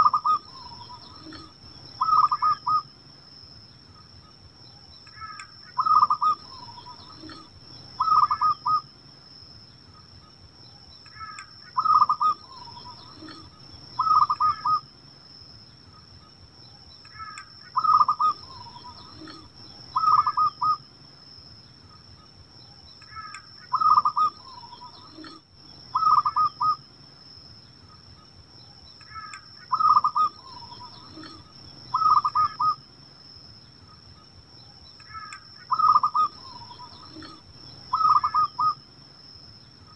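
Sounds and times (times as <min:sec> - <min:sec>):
dove cooing: 0:00.0 - 0:02.8, 0:05.2 - 0:08.8, 0:11.2 - 0:14.8, 0:17.1 - 0:20.8, 0:23.1 - 0:26.8, 0:29.1 - 0:32.8, 0:35.1 - 0:38.8
steady high-pitched whine: 0:00.0 - 0:39.9.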